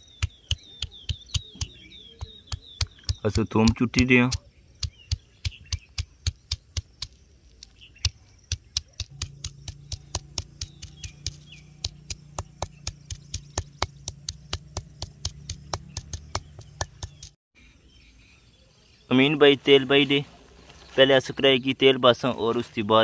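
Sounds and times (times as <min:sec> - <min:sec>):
stone pounding on stone slab: 0:08.5 - 0:17.4
steady low hum: 0:09.0 - 0:17.3.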